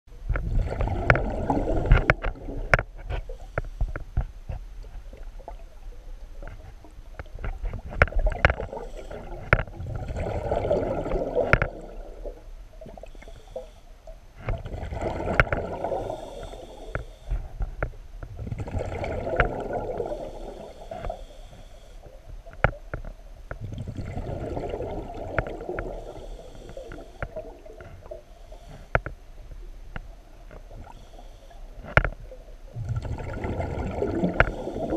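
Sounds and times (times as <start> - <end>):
air bubbles gurgling underwater: 0.3 - 2.8, 8.1 - 13.2, 14.5 - 16.9, 18.4 - 20.8, 23.6 - 28.2, 32.7 - 34.9.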